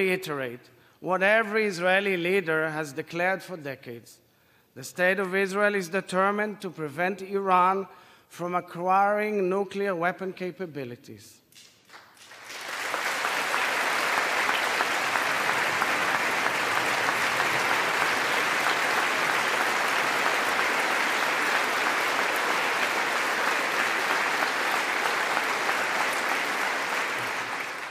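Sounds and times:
audience clapping: 0:11.8 - 0:27.9.

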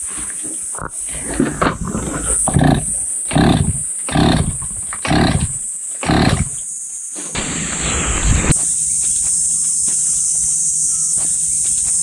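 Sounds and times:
brush cutter engine surging: 0:01.1 - 0:06.6
saw blade cutting weeds: 0:01.1 - 0:06.6.

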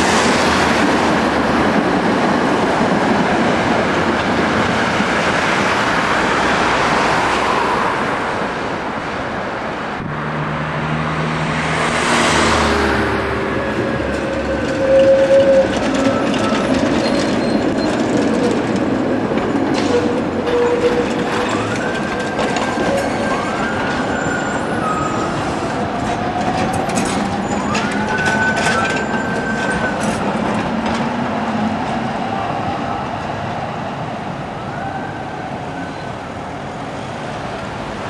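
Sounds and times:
tram wheels clicking over rails: 0:00.0 - 0:06.8, 0:13.2 - 0:32.3
road traffic: 0:00.0 - 0:38.0
tram electric whine: 0:11.8 - 0:38.0.

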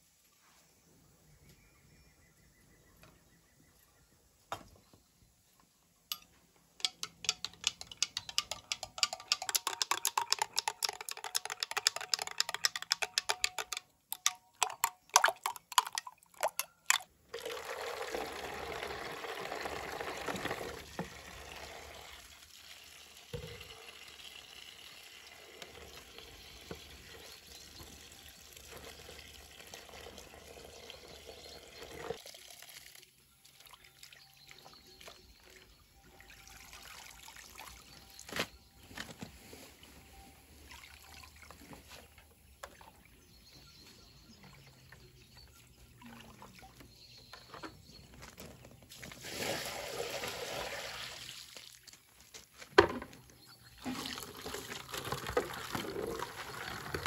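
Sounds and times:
metal spoon stirring in container: 0:06.1 - 0:17.0.

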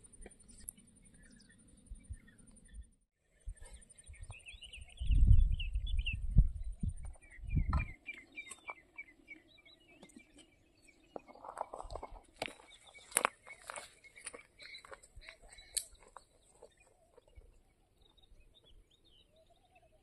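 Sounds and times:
birds chirping: 0:00.0 - 0:20.0
wind buffeting microphone: 0:03.4 - 0:08.1.

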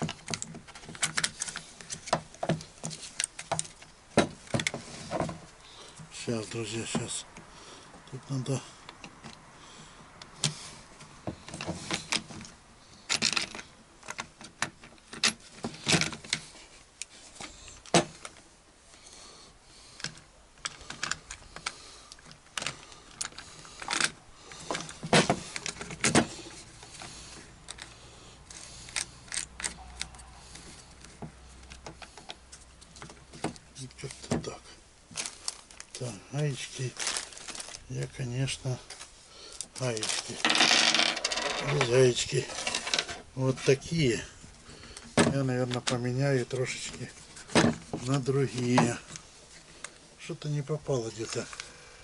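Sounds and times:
tool parts clicking and knocking: 0:00.0 - 0:05.4, 0:40.4 - 0:43.2.

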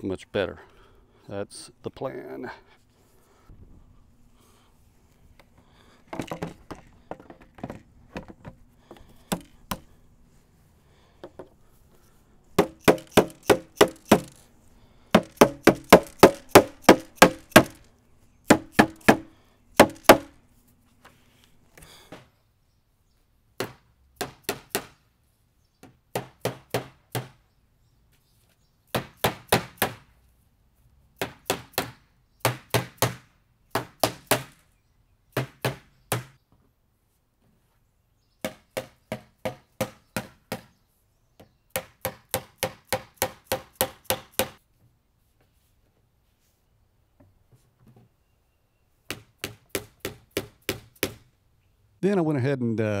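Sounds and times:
hammer striking plastic: 0:09.2 - 0:09.9, 0:12.6 - 0:14.4, 0:15.1 - 0:17.9, 0:18.5 - 0:20.3.

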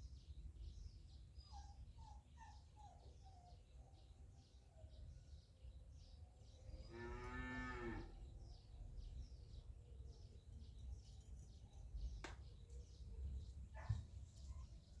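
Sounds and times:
small birds chirping: 0:00.0 - 0:15.0
cow mooing: 0:06.9 - 0:08.1.

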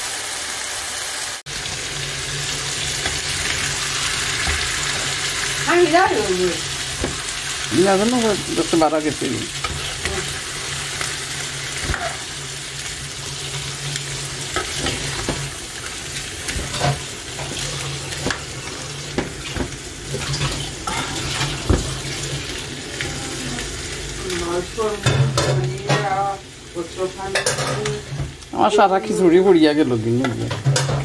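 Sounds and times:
food sizzling in oil: 0:00.0 - 0:31.0
metal spatula scraping pan: 0:11.8 - 0:12.4.

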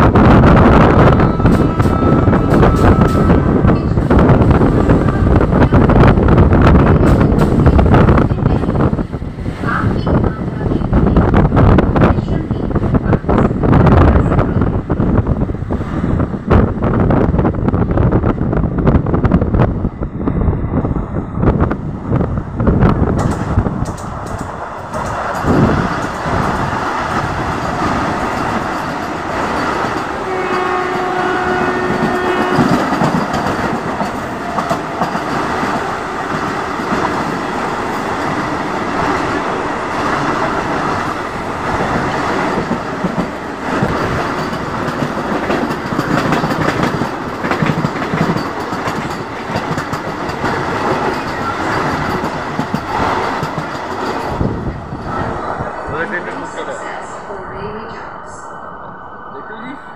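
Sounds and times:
train rumbling and rattling past: 0:00.0 - 0:59.9
train horn: 0:00.8 - 0:03.7, 0:30.1 - 0:33.1.

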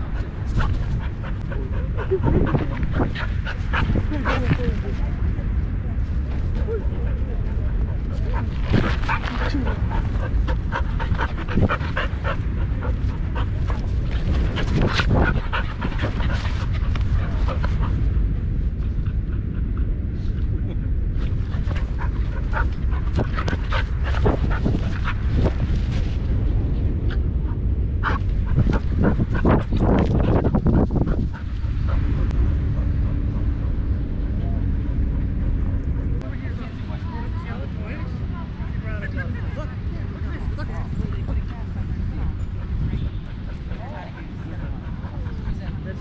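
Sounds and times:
dog panting: 0:00.0 - 0:05.0, 0:06.4 - 0:18.2, 0:21.2 - 0:26.1, 0:28.0 - 0:36.8, 0:40.6 - 0:46.0
steady low rumble: 0:00.0 - 0:46.0
wind buffeting microphone: 0:00.0 - 0:46.0.

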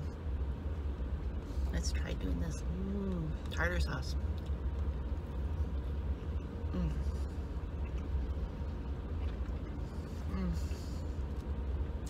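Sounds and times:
faint chewing: 0:04.3 - 0:11.6
person humming: 0:06.7 - 0:07.2, 0:10.3 - 0:10.8.

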